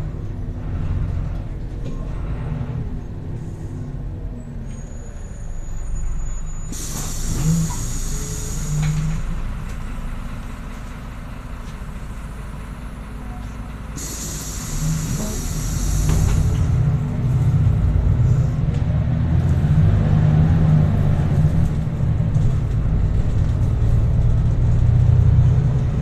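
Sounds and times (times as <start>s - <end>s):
bus engine rumble: 0.0s - 26.0s
compressed air hiss: 6.7s - 8.9s, 14.0s - 16.6s.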